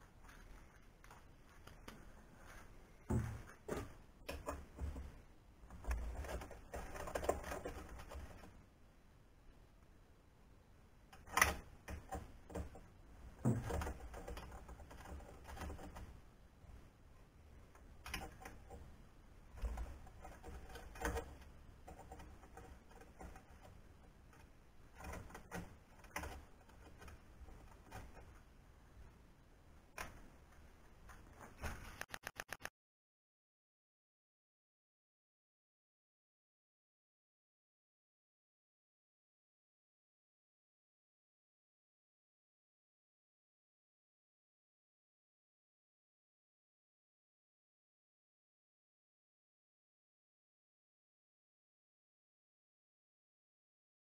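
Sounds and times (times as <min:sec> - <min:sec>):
hands rustling: 0:00.0 - 0:04.1.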